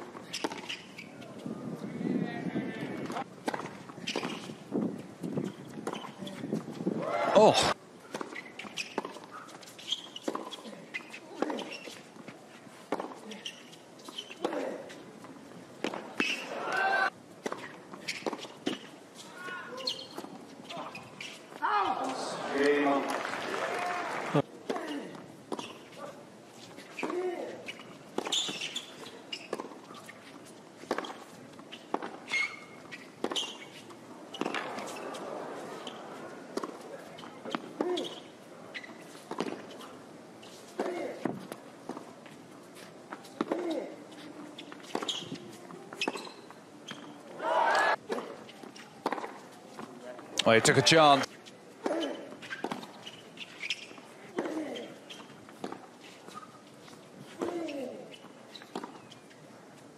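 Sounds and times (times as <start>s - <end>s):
shoe squeaks: 0.0s - 1.5s, 3.9s - 4.6s, 5.4s - 6.7s, 8.0s - 15.0s, 16.1s - 16.7s, 17.5s - 23.0s, 25.5s - 42.1s, 42.7s - 47.3s, 47.9s - 49.7s, 50.5s - 59.4s
tennis ball bouncing: 0.1s - 0.8s, 8.1s - 9.3s, 12.8s - 14.6s, 15.2s - 16.5s, 28.2s - 38.2s, 38.8s - 39.8s, 48.1s - 49.9s, 51.8s - 53.0s, 55.2s - 56.5s, 57.3s - 59.1s
faint crowd murmur: 28.9s - 59.9s
racket hitting tennis ball: 31.9s - 38.2s.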